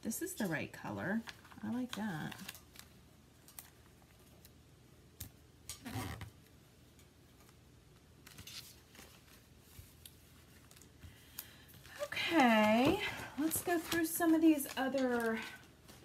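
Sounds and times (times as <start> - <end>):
faint paper rustles and taps: 8.2 - 16.0.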